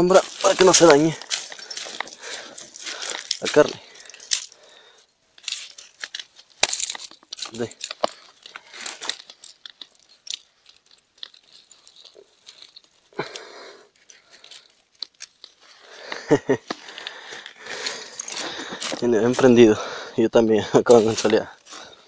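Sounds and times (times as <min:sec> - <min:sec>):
scrape on pebbles: 0:00.0 - 0:04.5, 0:20.7 - 0:22.0
footsteps crunching on pebbles: 0:00.0 - 0:04.7, 0:15.2 - 0:22.0.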